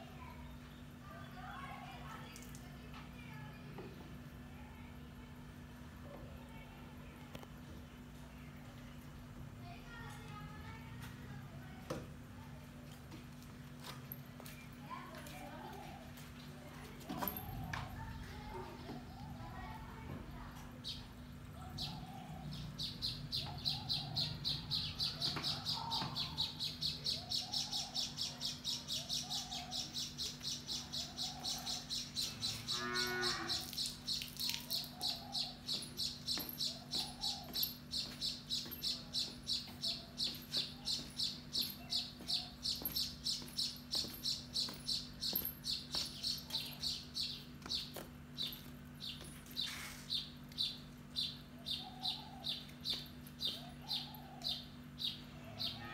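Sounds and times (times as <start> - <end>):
steady low hum: 15.7 - 55.9
high bird chirp: 20.8 - 55.9.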